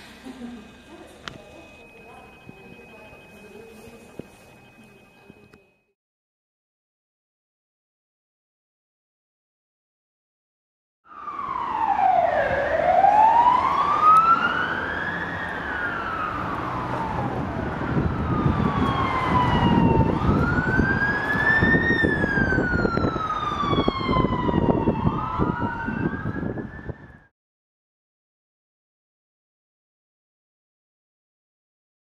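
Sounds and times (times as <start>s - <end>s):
second rising siren tone: 11.1s - 27.3s
siren wailing: 11.1s - 27.3s.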